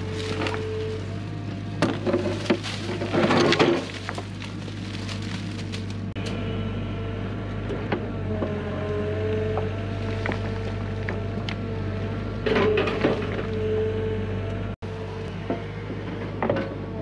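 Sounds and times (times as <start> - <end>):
excavator diesel engine running: 0.0 - 17.0
bucket scraping through rock: 1.8 - 6.1.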